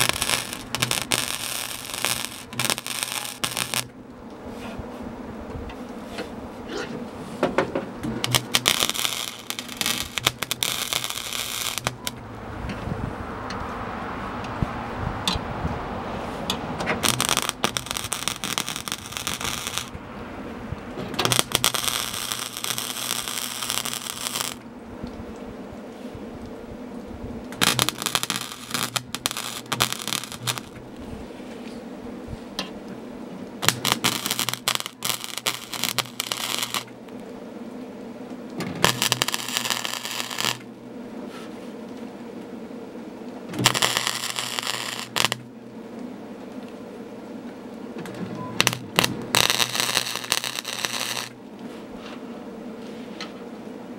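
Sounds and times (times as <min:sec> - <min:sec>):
welding arc crackling: 0:00.0 - 0:04.3, 0:07.5 - 0:13.6, 0:14.4 - 0:31.1, 0:32.6 - 0:37.4, 0:38.3 - 0:40.8, 0:43.1 - 0:51.6
low hum: 0:00.0 - 0:53.9.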